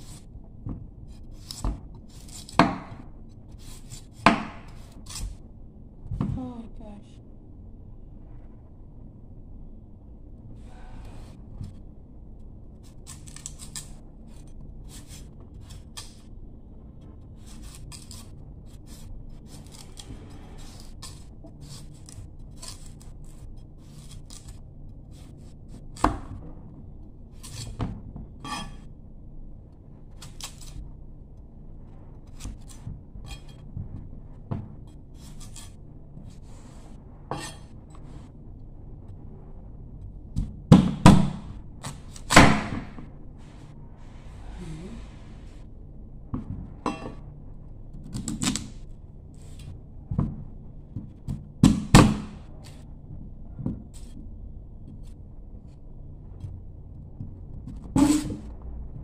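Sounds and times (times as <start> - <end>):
knife cutting fruit peel: 1.1 - 5.4, 12.8 - 16.4, 17.3 - 26.5, 27.3 - 28.9, 30.1 - 30.8, 32.2 - 33.6, 34.8 - 38.0, 40.4 - 43.0, 48.0 - 49.7, 57.7 - 58.5.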